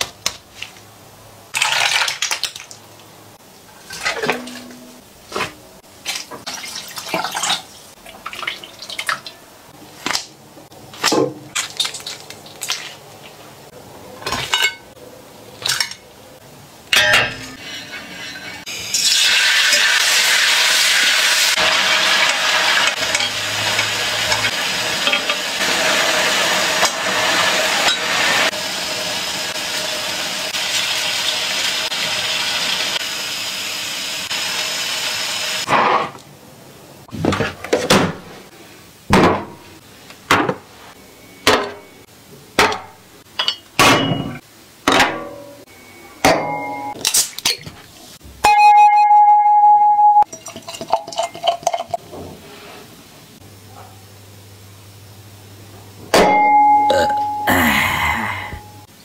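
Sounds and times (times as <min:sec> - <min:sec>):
food sizzling on griddle: 0:17.8 - 0:35.7.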